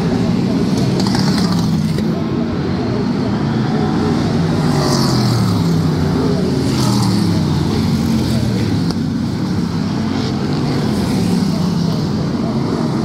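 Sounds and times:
stock car engines racing: 0.0 - 13.0.

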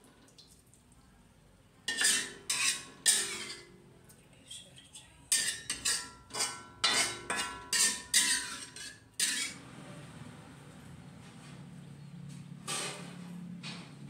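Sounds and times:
metal spatula clanking on wok: 1.9 - 3.8, 5.3 - 9.6.

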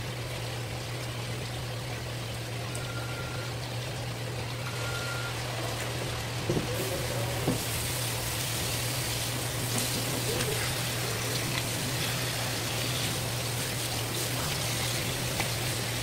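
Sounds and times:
tap water splashing: 5.6 - 16.0.

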